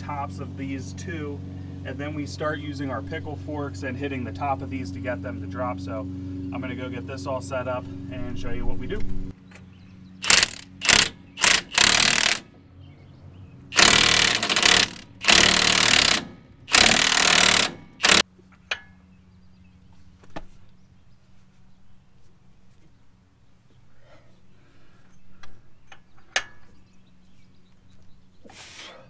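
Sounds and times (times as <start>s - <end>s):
impact wrench bursts: 10.2s - 12.5s, 13.7s - 18.2s.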